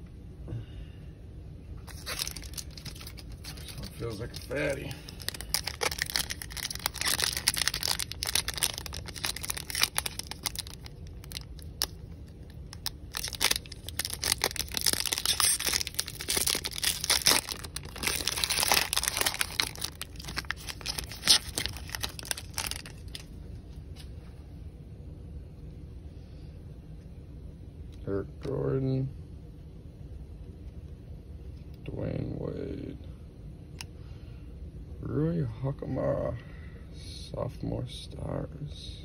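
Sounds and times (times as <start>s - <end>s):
foil pack crackling and tearing: 1.8s - 23.3s.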